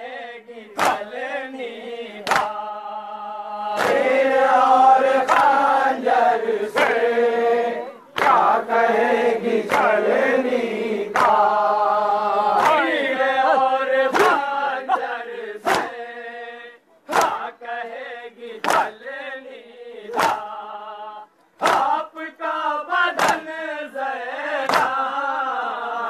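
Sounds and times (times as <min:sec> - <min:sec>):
men chanting a lament: 0:00.0 - 0:26.0
chest-beating slaps: 0:00.7 - 0:01.1, 0:02.2 - 0:02.6, 0:03.7 - 0:04.1, 0:11.1 - 0:11.5, 0:12.5 - 0:13.0, 0:14.1 - 0:16.0, 0:17.1 - 0:17.5, 0:18.6 - 0:19.0, 0:20.1 - 0:20.6, 0:21.6 - 0:22.0, 0:23.1 - 0:23.6, 0:24.6 - 0:25.0.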